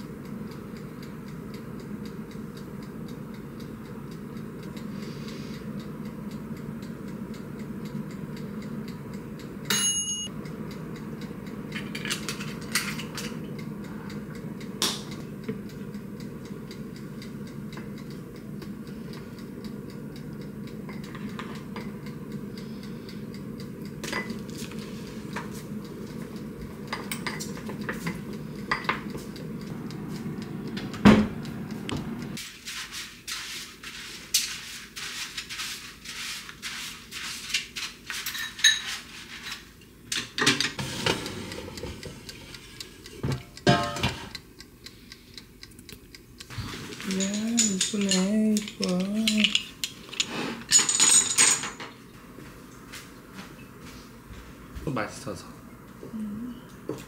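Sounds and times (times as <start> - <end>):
low steady hum: 0.0 - 32.4, 40.7 - 57.0
ringing glass clink: 9.7 - 10.3.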